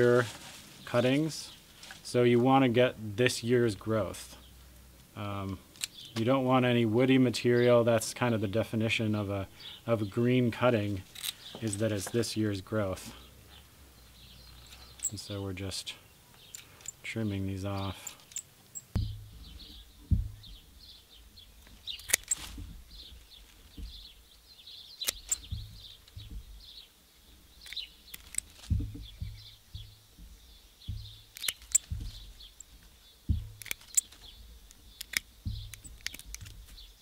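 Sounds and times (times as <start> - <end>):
high chirping: 16.2 - 37.0
low thuds: 18.8 - 24.4, 25.1 - 36.9
pruners snipping leaves: 21.6 - 24.2, 25.0 - 26.8, 27.6 - 36.9.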